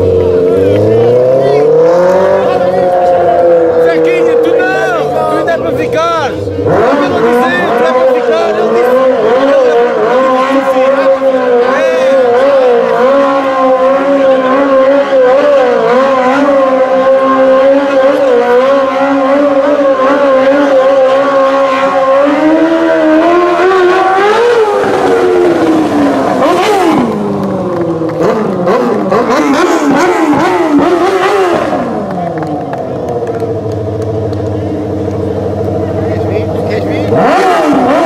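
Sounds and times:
quad bike engine revving: 0:00.0 - 0:38.0.

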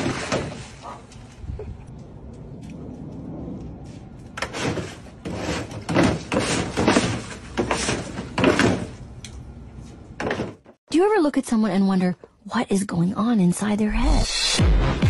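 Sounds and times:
plastic pool scraping on concrete: 0:00.0 - 0:01.0, 0:04.4 - 0:09.0.

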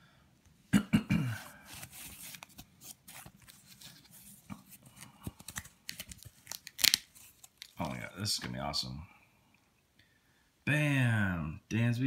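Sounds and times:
paper and cardboard rustling: 0:01.5 - 0:08.1.

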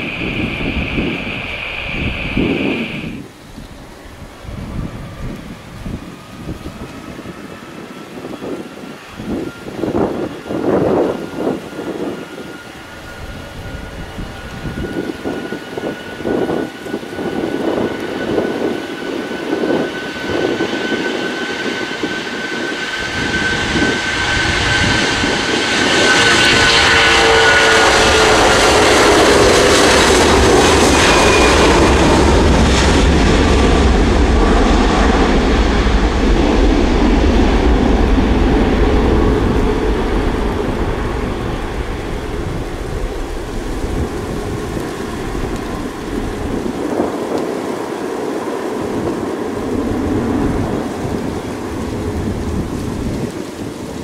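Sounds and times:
jet engine deep rumble: 0:00.0 - 0:54.0
jet engine whine: 0:00.0 - 0:54.0.

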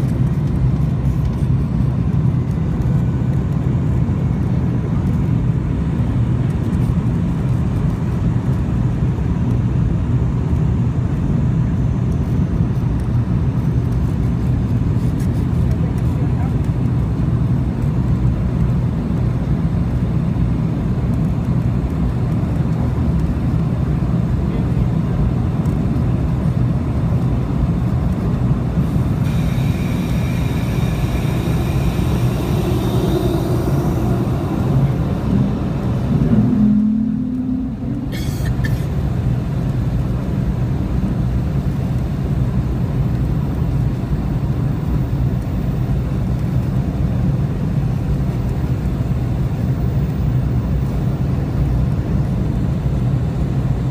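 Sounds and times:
jet engine cabin rumble: 0:00.0 - 0:53.9
short low tone: 0:31.4 - 0:38.9.

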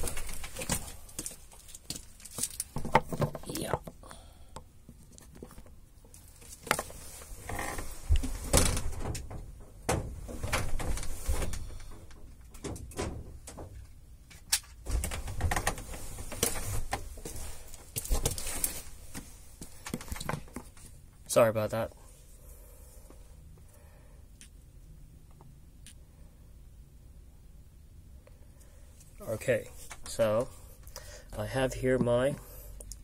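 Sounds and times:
rustling and scraping: 0:00.0 - 0:03.8, 0:04.8 - 0:21.2
sharp knocks and clicks: 0:02.6 - 0:04.0, 0:11.8 - 0:17.0.

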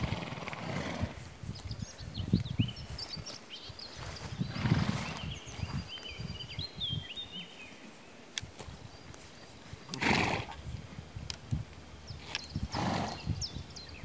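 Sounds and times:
horse snorting: 0:00.0 - 0:01.2, 0:04.5 - 0:05.2, 0:09.9 - 0:10.6, 0:12.6 - 0:13.4
rustling of grazing horses: 0:00.0 - 0:14.0
bird chirps: 0:01.5 - 0:08.2.

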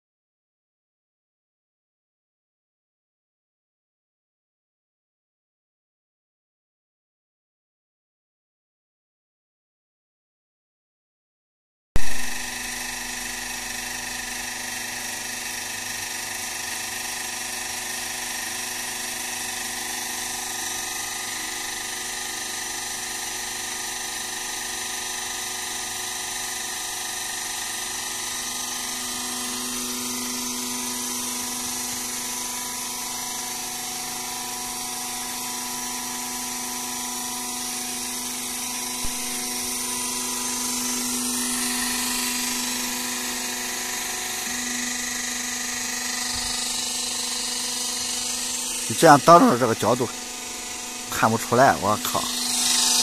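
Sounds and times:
hydraulic pump hum and whine: 0:12.0 - 0:53.0.

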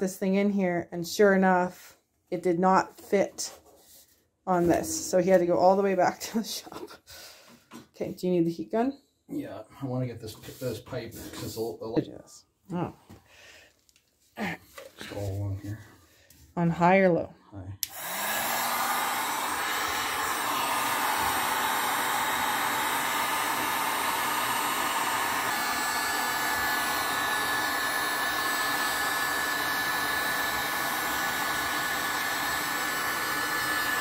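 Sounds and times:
heat gun blowing air: 0:17.8 - 0:34.0.

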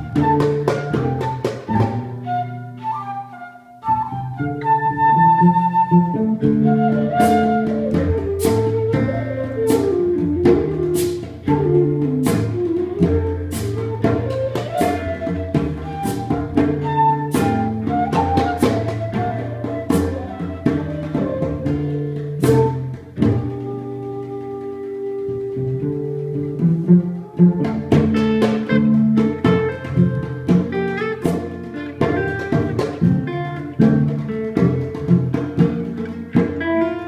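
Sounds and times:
cello: 0:00.0 - 0:37.0
wooden flute melody: 0:00.0 - 0:37.0
goblet drums struck with sticks: 0:06.8 - 0:23.7, 0:26.6 - 0:37.0.

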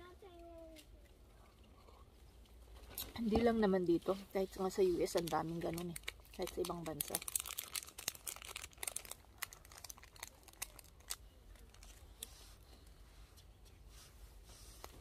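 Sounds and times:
plastic wrapper crinkling and tearing: 0:05.1 - 0:12.3.

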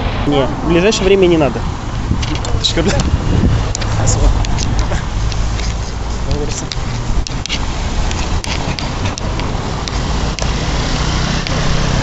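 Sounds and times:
street traffic rumble: 0:00.0 - 0:12.0
sharp clicks: 0:03.7 - 0:11.6.

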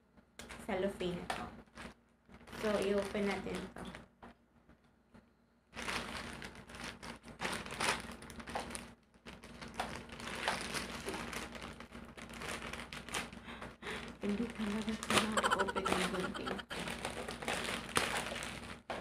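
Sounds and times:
plastic bag crinkling: 0:05.8 - 0:13.4.

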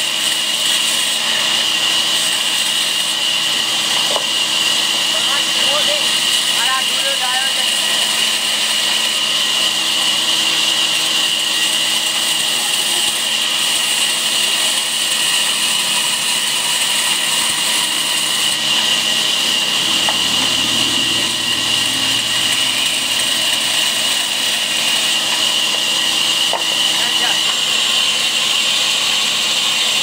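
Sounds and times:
band saw cutting wood: 0:00.0 - 0:30.0.

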